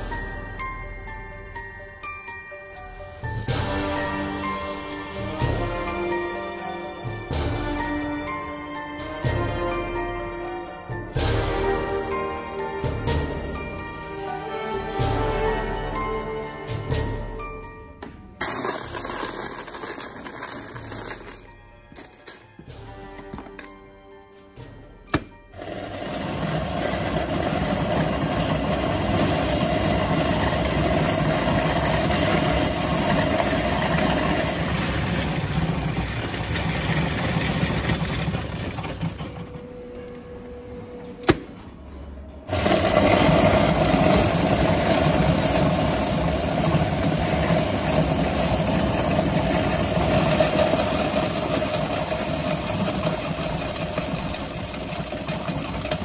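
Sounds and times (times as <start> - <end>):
coin machine whirring: 18.4 - 22.4, 25.5 - 39.7, 42.5 - 56.0
coins rattling: 18.4 - 22.5, 25.6 - 39.5, 42.5 - 56.0.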